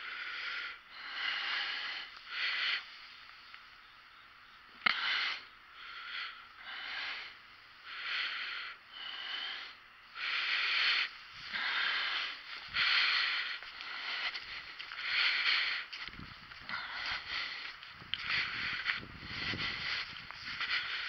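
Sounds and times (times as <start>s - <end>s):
breathing close to microphone: 0.0s - 3.2s, 4.8s - 21.0s.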